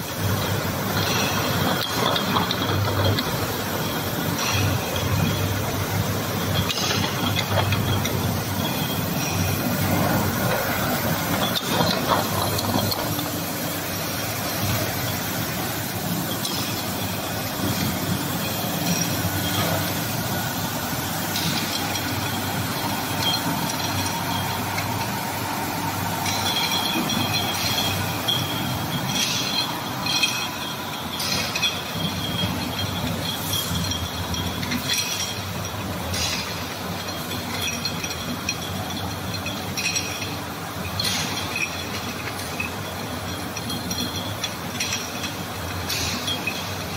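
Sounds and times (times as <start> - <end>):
machine mechanical clatter: 0.0 - 46.9
bottles clinking together: 0.3 - 46.9.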